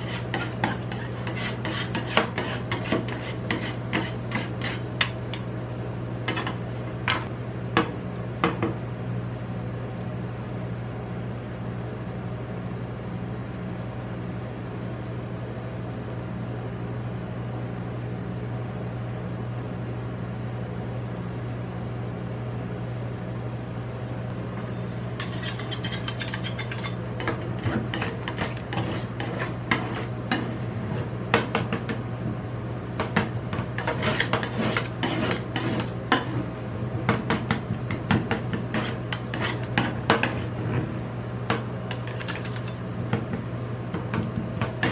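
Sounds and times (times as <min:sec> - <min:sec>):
metal spatulas scraping cold plate: 0:00.0 - 0:05.5, 0:24.6 - 0:31.2, 0:33.5 - 0:36.5, 0:38.3 - 0:40.9, 0:41.9 - 0:42.8, 0:44.6 - 0:44.9
steady low hum: 0:00.0 - 0:44.9.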